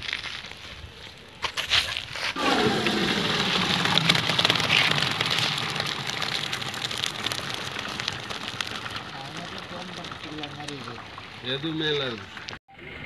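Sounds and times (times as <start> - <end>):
rice sliding out: 2.4 - 11.4
water gushing into metal basin: 2.4 - 12.6.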